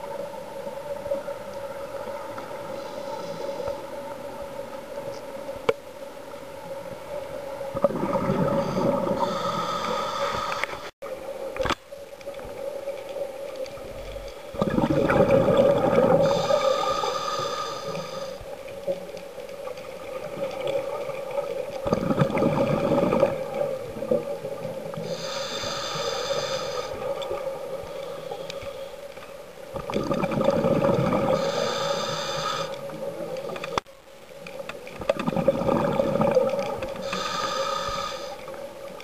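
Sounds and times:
bubbling exhalation underwater: 14.6 - 16.3, 21.8 - 23.5, 29.8 - 31.4, 35.1 - 36.7.

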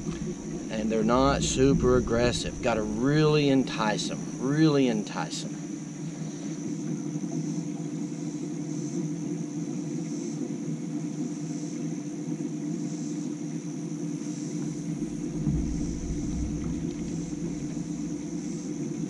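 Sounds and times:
deep low rumble: 0.0 - 4.4, 14.8 - 19.0
trolling motor electric hum: 0.0 - 4.6, 14.6 - 19.0
faint high buzz: 0.0 - 19.0.

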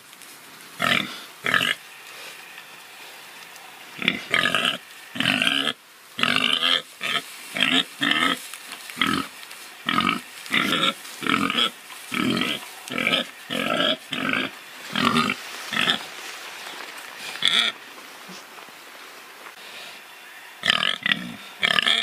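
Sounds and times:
pig grunting: 4.0 - 8.4, 9.0 - 16.0, 20.6 - 22.0.

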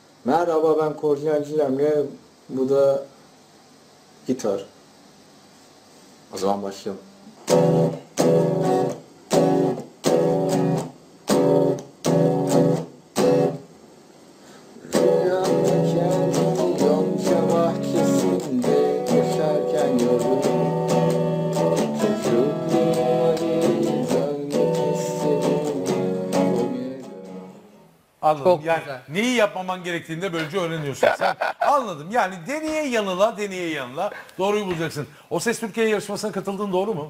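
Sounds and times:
electric guitar chords: 7.4 - 13.6, 14.9 - 28.0.

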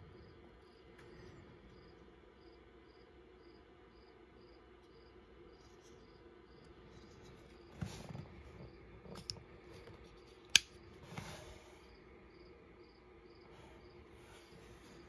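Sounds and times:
crickets chirping: 0.0 - 8.0, 10.1 - 15.0
folding knife click: 10.5 - 10.8.

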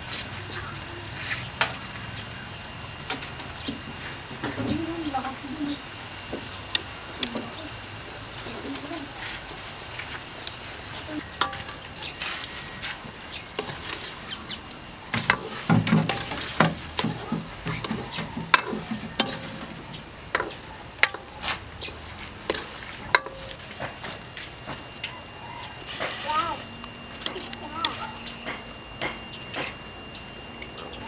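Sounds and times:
metal utensil scraping wok: 10.8 - 14.3, 15.2 - 21.4.

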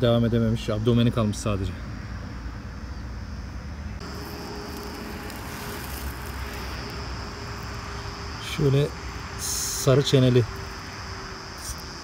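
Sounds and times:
high-pitched insect buzz: 3.2 - 12.0.

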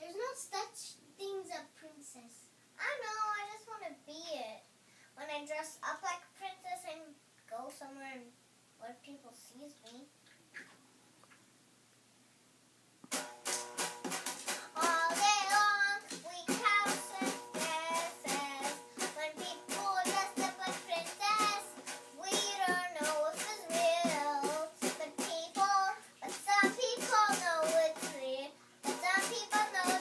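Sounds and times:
girl singing: 0.0 - 4.5, 14.4 - 30.0
instrumental accompaniment with beat: 13.0 - 14.8.

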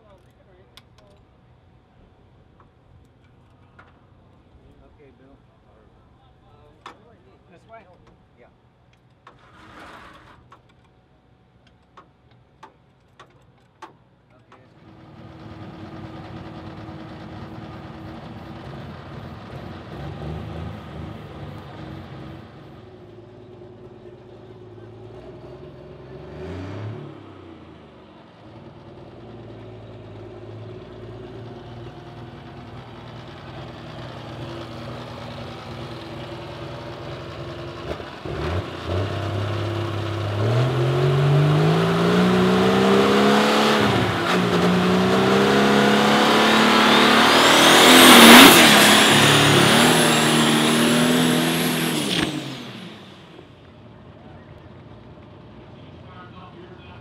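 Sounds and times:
diesel engine revving: 14.8 - 54.2.

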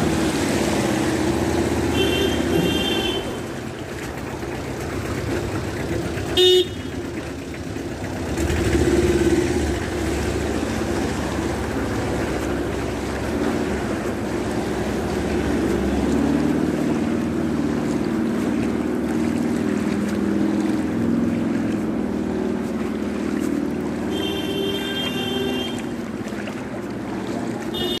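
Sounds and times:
vehicle engine running: 0.0 - 28.0
water churning: 0.0 - 28.0
high-pitched horn: 24.1 - 25.9.

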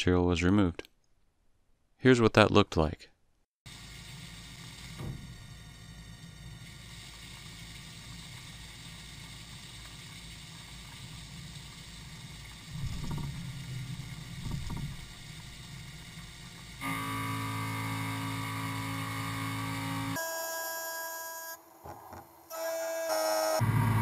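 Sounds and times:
milling machine hum: 3.7 - 20.5
machine whine of held tones: 4.3 - 8.0, 12.7 - 24.0.

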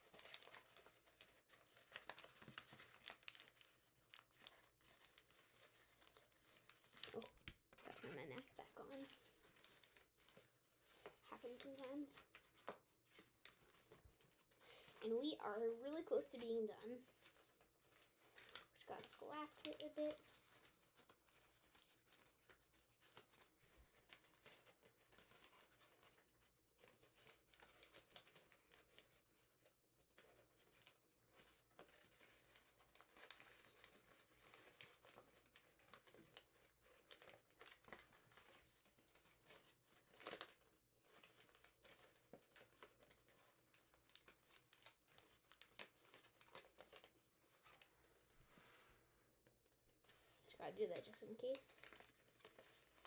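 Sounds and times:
paper crinkling: 0.0 - 53.0.

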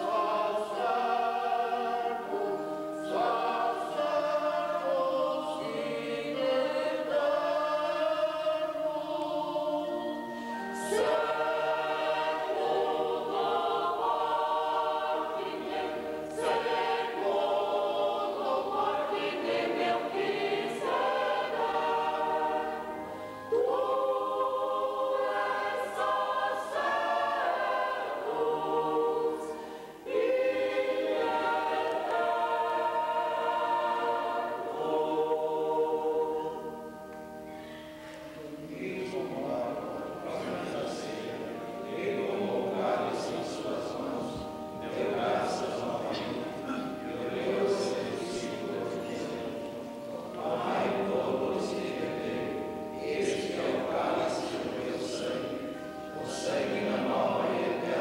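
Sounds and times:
mixed choir singing: 0.0 - 58.0
singers breathing: 29.5 - 30.0, 37.5 - 38.4.

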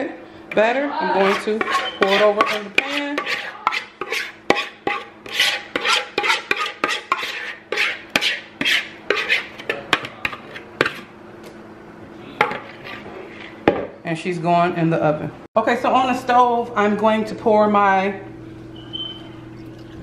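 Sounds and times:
spoon scraping batter from bowl: 1.1 - 11.1, 12.5 - 13.6.

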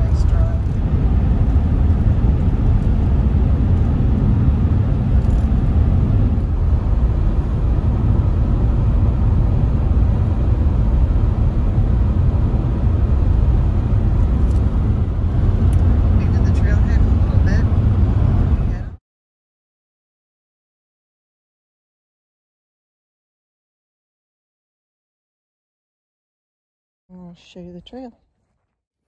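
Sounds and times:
car driving rumble: 0.0 - 19.0.

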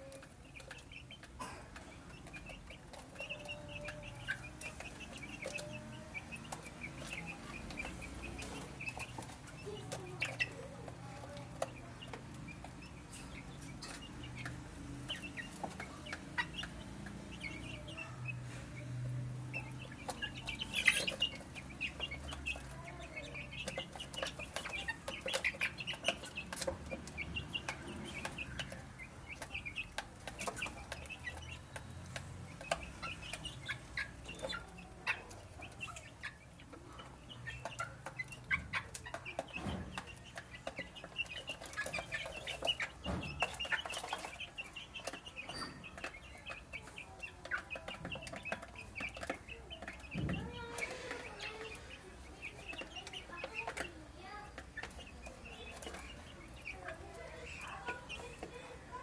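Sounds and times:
beaks pecking at a dish: 0.0 - 59.0
chicks peeping and clucking: 0.0 - 59.0.

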